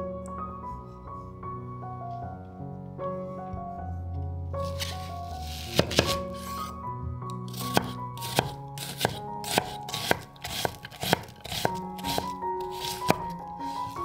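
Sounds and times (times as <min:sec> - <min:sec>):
background music: 0:00.0 - 0:14.0
knife chopping on wooden board: 0:05.5 - 0:06.6, 0:07.5 - 0:13.3.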